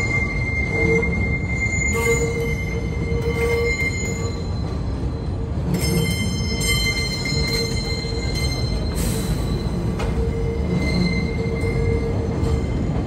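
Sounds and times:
wheel squeal: 0.0 - 4.9, 5.8 - 13.0
subway train rumble: 0.0 - 13.0.

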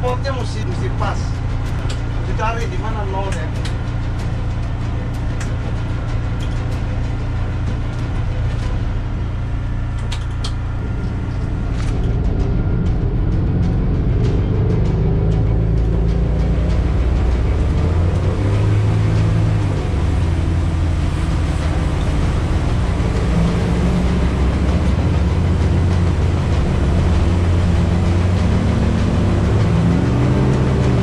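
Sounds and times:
motorboat engine drone: 0.0 - 31.0
wind and water rushing: 10.8 - 31.0.

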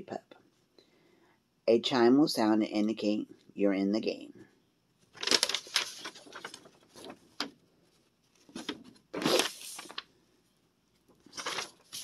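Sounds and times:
paper rustling: 5.0 - 10.2, 11.0 - 12.0.

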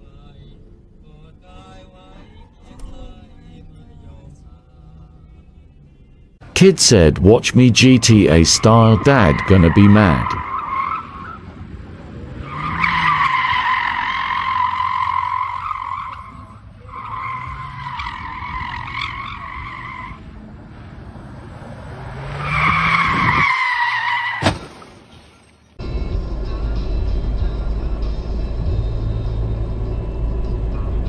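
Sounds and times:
tyres squealing on pavement: 8.6 - 11.6, 12.3 - 20.3, 21.6 - 25.6.

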